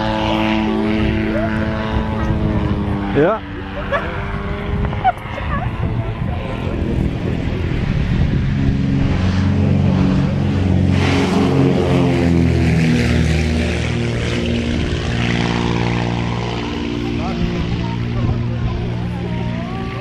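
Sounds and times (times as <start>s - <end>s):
twin piston engine plane taking off: 0.0s - 20.0s.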